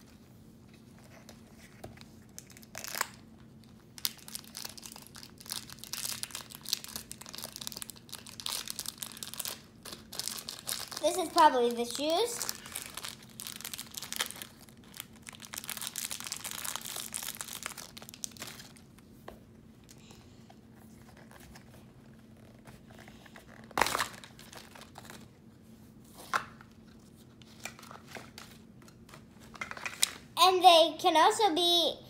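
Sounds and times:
plastic wrapper tearing and crinkling: 0:02.3 - 0:19.0, 0:23.4 - 0:25.4.

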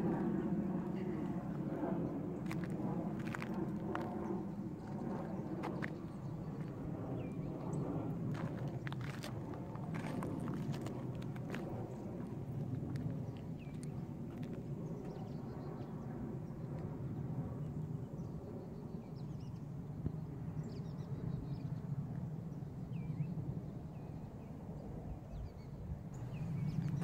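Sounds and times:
footsteps on rock and stones: 0:02.4 - 0:04.1, 0:08.3 - 0:14.6.

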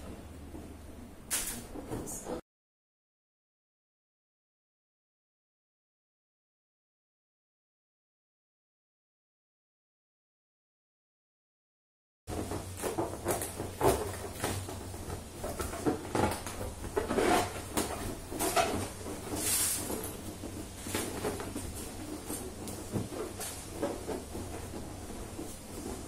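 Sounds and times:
rustles and knocks: 0:12.3 - 0:26.0.

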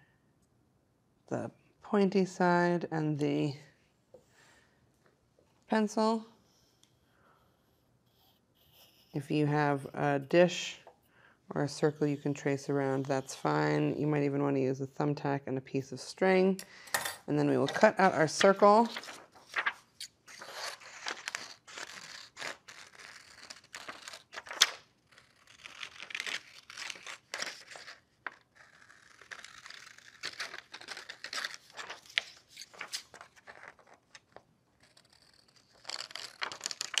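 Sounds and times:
paper rustling: 0:17.6 - 0:37.0
scissors snipping paper: 0:17.7 - 0:37.0.

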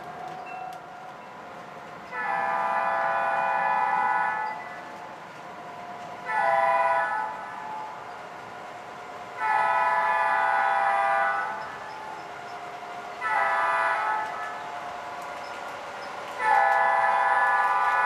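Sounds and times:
locomotive air horn blasts: 0:02.2 - 0:04.6, 0:06.3 - 0:07.5, 0:09.4 - 0:11.6, 0:13.2 - 0:14.6, 0:16.4 - 0:18.0.

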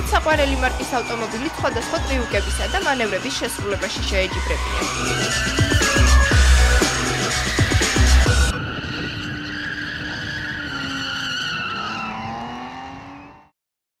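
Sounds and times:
background music with a beat: 0:00.0 - 0:08.5
tyres squealing: 0:00.0 - 0:12.8
car engine revving hard: 0:04.4 - 0:13.5.

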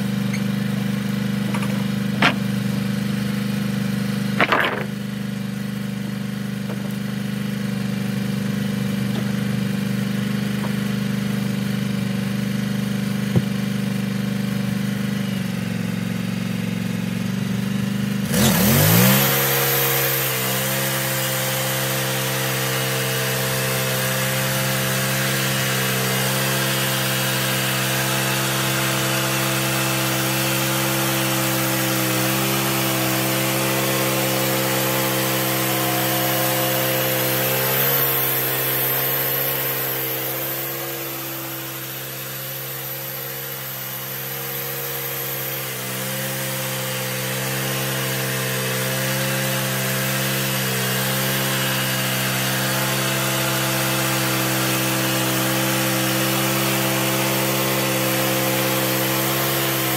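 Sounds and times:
sawmill engine revving: 0:00.0 - 0:59.9
band blade hissing and cutting: 0:18.4 - 0:59.9.

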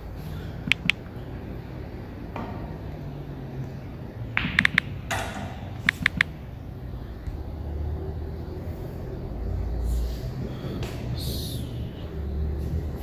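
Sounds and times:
billiard balls clicking: 0:00.6 - 0:01.1, 0:04.4 - 0:06.4
cue knocking ball: 0:04.4 - 0:06.0.

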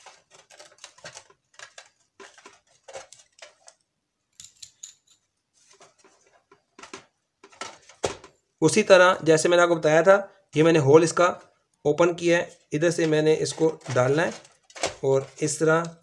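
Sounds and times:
clicks and clatter of small parts: 0:00.0 - 0:08.3, 0:13.8 - 0:15.3.

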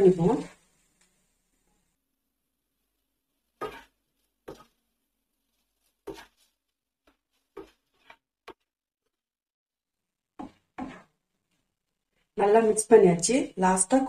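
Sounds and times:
spatula stirring rice in pan: 0:00.4 - 0:09.1, 0:10.0 - 0:12.4.

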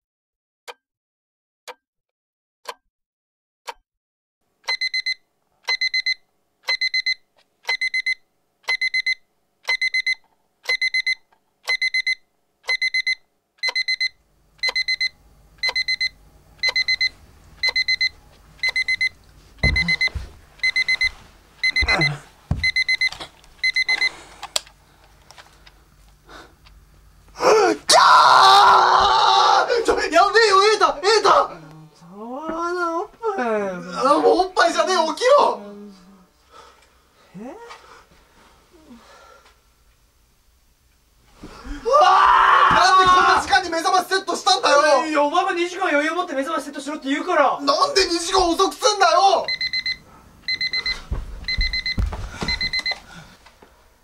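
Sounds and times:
alarm clock ticking: 0:04.6 - 0:19.1, 0:19.8 - 0:24.1, 0:49.4 - 0:53.0
electronic alarm beeps: 0:04.7 - 0:24.2, 0:49.4 - 0:53.0
soft thumps: 0:19.6 - 0:20.4.

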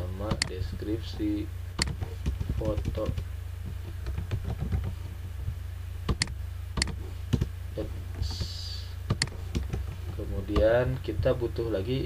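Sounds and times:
steady low hum: 0:00.0 - 0:12.0
keyboard typing: 0:01.8 - 0:03.2.

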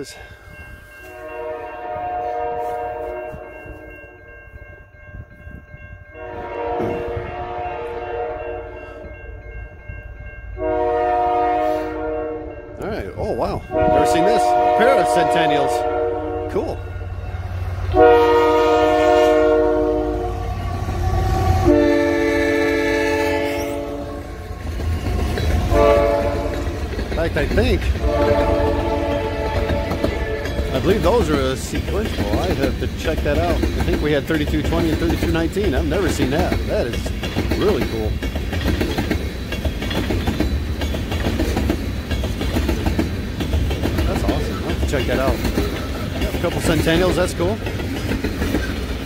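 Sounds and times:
train low rumble: 0:00.0 - 0:49.0
locomotive air horn blasts: 0:01.1 - 0:03.5, 0:06.2 - 0:08.8, 0:10.6 - 0:12.7, 0:13.7 - 0:16.7, 0:17.9 - 0:24.4, 0:25.7 - 0:26.8, 0:28.0 - 0:30.5
wheels clicking over rail joints: 0:24.2 - 0:49.0.

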